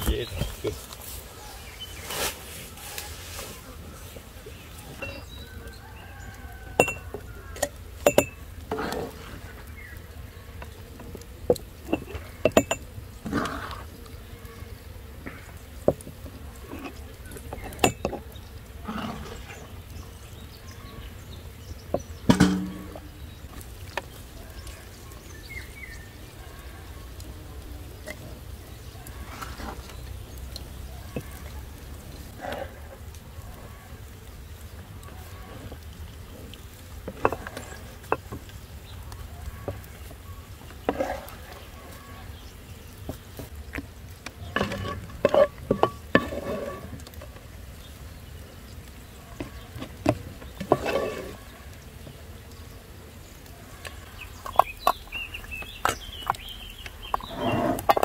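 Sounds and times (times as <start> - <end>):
wooden spoon knocking on glass jar: 6.8 - 8.4, 11.9 - 12.9, 17.6 - 18.2
wooden ladle knocking on pan: 21.9 - 23.0.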